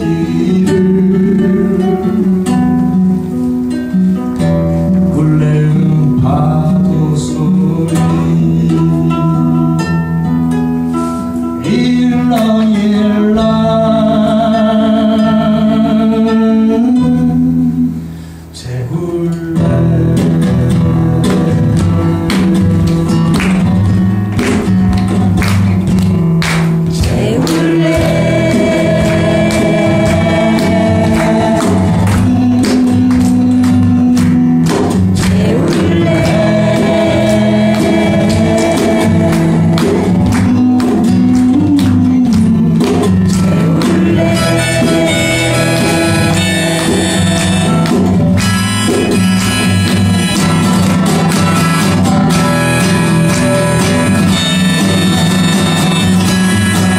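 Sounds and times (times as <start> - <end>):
acoustic guitar strumming: 0.0 - 56.9
harmonica melody: 43.2 - 56.9.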